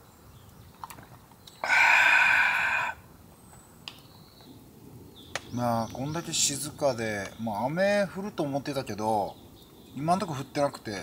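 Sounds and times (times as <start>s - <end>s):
person exhaling breathily: 1.6s - 3.0s.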